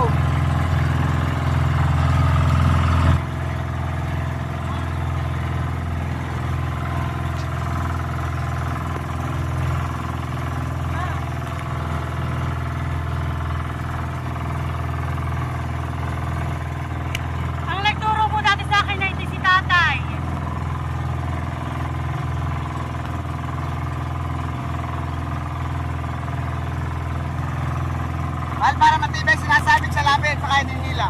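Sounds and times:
motor boat engine running: 0.0s - 31.0s.

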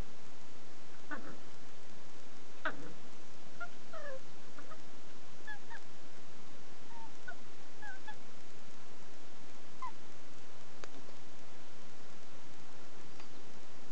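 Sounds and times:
puppy squealing: 3.6s - 4.8s, 5.4s - 5.8s, 6.9s - 8.2s.

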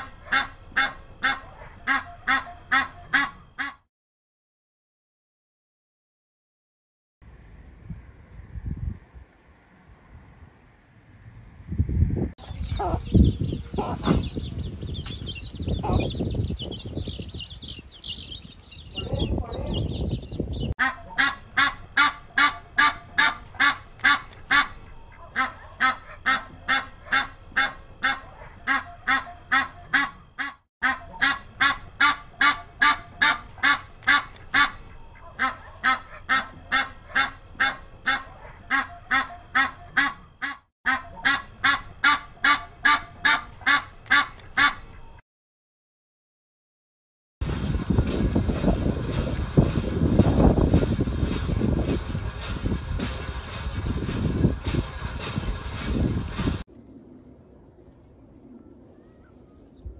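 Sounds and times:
ducks calling: 0.0s - 3.8s, 12.4s - 44.9s
low rumbling bursts: 7.3s - 20.8s, 47.4s - 58.9s.

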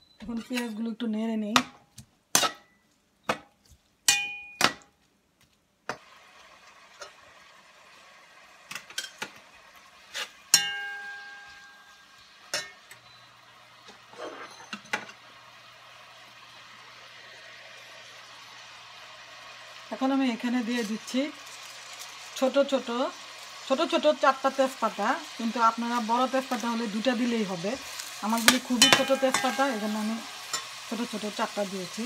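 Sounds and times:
metal spatula clanging in pot: 2.3s - 3.5s, 4.1s - 4.9s, 10.1s - 13.0s, 28.4s - 30.9s
onions sizzling in oil: 5.9s - 32.0s.

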